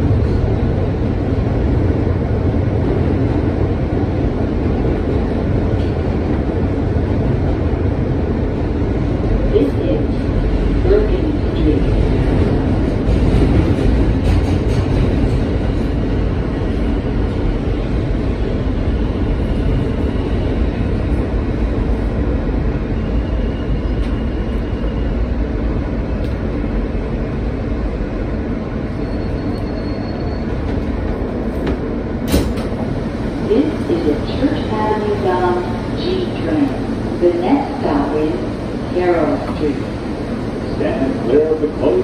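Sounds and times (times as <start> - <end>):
subway car rumbling on rails: 0.0 - 42.0
faint high squeal: 28.9 - 30.7.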